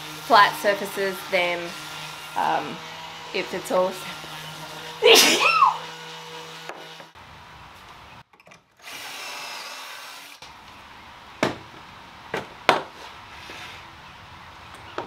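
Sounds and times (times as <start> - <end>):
plywood panels knocking: 11.4 - 12.9.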